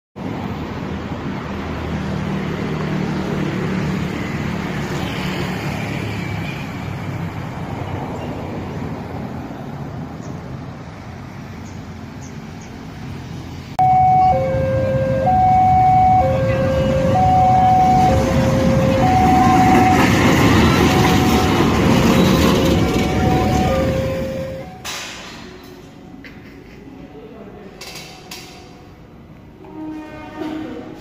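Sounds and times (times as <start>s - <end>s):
vehicle engine and traffic: 0.2s - 31.0s
two-tone siren: 13.8s - 24.9s.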